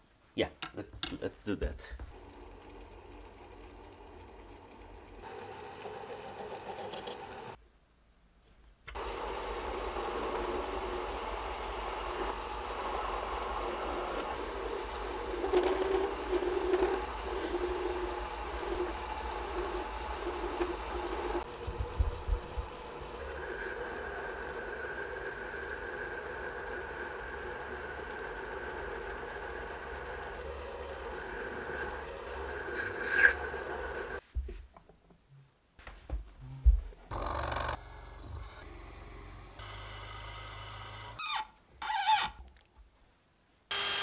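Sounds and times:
mini lathe motor running: 2.1 - 7.6, 9.0 - 34.2, 37.1 - 42.3, 43.7 - 44.0
cutter shaping brass: 9.0 - 21.5, 22.9 - 34.2.

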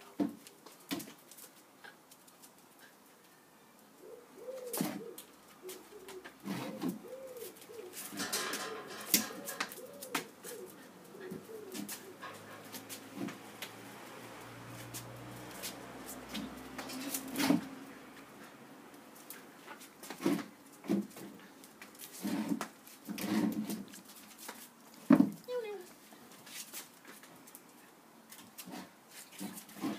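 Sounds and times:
footsteps and paws on brick paving: 0.2 - 3.4, 4.6 - 8.2, 9.2 - 29.9
pigeon cooing: 4.0 - 13.8.

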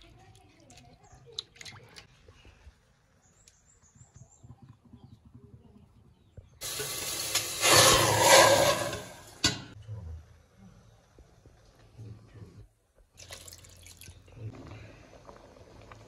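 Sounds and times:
water splashing into metal pot: 13.2 - 14.2.

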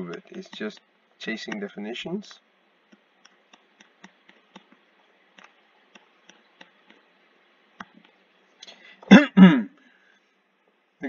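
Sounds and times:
stylus tapping tablet screen: 0.0 - 0.9, 2.8 - 8.2.

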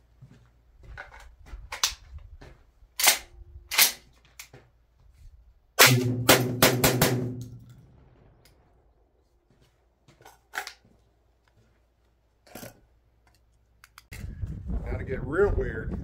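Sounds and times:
shotgun shots: 5.8 - 8.8.

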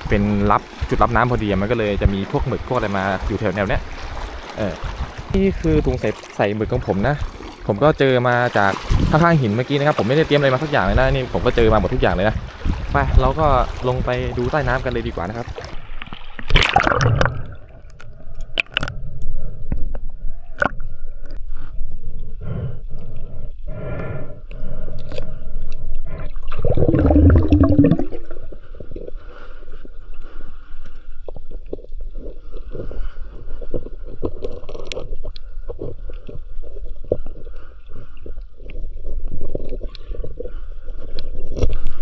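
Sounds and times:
water splash: 0.0 - 17.9, 26.5 - 28.4
underwater gurgling and bubbling: 26.0 - 28.8
muffled water surge: 26.5 - 28.5.

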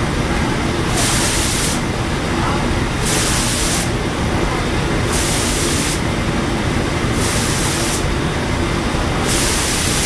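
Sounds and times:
spray guns hissing: 3.0 - 3.9, 9.3 - 10.0.

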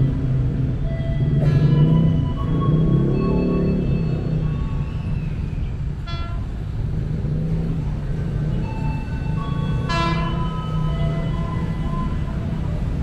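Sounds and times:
electric train rumbling past: 0.0 - 13.0
train horn toot: 6.0 - 6.8, 9.6 - 12.4.

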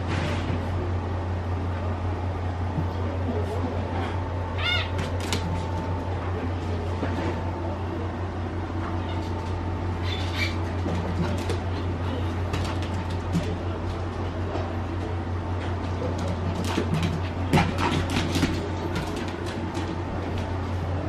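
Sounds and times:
steady low hum: 0.0 - 21.0
dog whining: 4.6 - 5.1.

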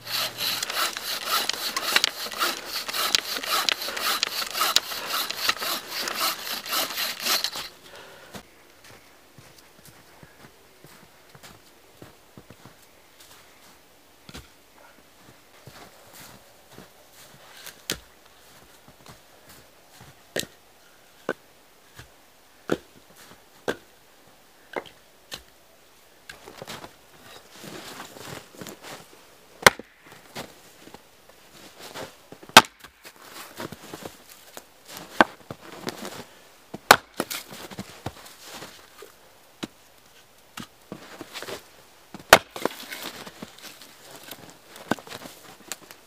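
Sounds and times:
rustling: 0.0 - 8.2, 40.9 - 46.0
axe splitting wood: 0.1 - 7.7, 29.6 - 29.9, 32.6 - 32.8, 36.9 - 37.5, 42.3 - 43.1.

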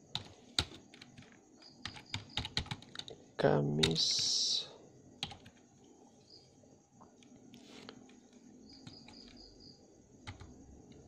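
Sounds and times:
faint high chirps: 8.6 - 9.9.

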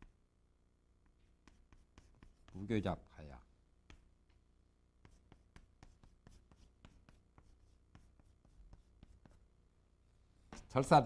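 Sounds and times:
chalk tapping and scraping on chalkboard: 1.0 - 2.8, 3.8 - 4.1, 5.0 - 9.5, 10.5 - 10.9.

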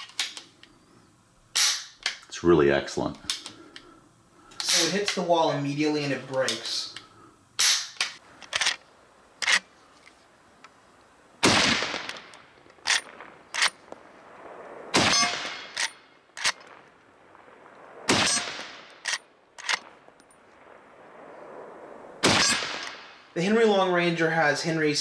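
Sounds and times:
light clicks of rifle action: 0.0 - 0.8, 3.2 - 3.9, 4.5 - 5.3, 6.3 - 11.1, 11.9 - 14.0, 18.9 - 20.4
rifle shots echoing: 7.6 - 8.8, 11.4 - 23.7
rifle lever metallic clacks: 12.8 - 13.8.

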